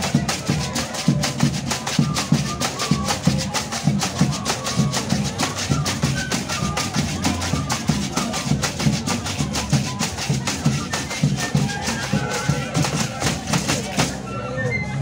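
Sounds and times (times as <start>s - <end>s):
rattling shakers: 0.0s - 14.2s
struck percussion: 0.0s - 14.2s
drum beating steady rhythm: 0.0s - 14.3s
high flute notes: 0.7s - 15.0s.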